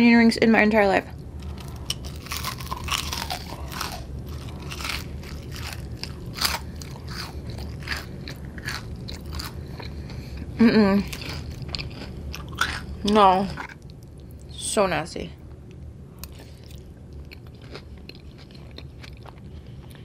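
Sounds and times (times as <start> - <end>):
biting into crispy food: 1.4 - 9.9, 11.0 - 13.8
crunchy chewing: 1.4 - 14.5, 16.2 - 20.0.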